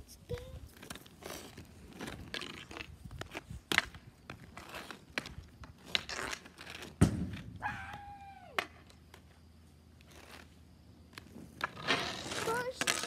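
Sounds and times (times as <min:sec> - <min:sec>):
skate wheels rolling on concrete: 0:00.0 - 0:13.0
loud hard thunk of shot: 0:07.0 - 0:07.5.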